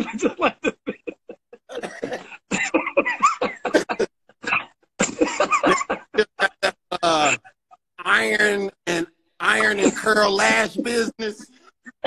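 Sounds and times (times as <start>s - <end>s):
men laughing hard: 0.0s - 7.8s.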